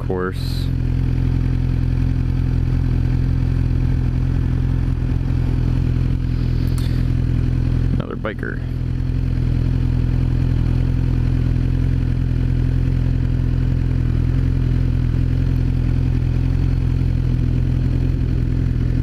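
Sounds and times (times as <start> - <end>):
motorcycle engine idling: 0.0 - 19.0.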